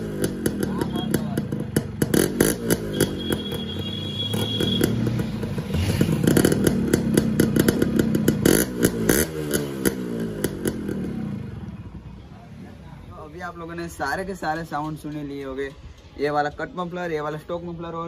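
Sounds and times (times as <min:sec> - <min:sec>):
two-stroke engine revving: 0:00.0 - 0:11.7
exhaust crackles: 0:04.3 - 0:11.5.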